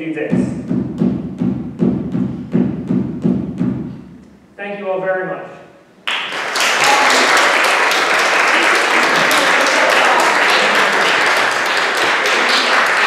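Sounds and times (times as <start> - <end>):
audience applauding: 6.0 - 13.0.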